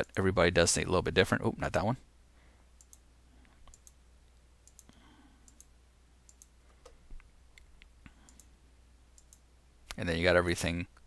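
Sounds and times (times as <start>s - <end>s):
computer mouse clicks: 2.8s - 5.7s, 6.3s - 8.5s, 9.2s - 10.0s.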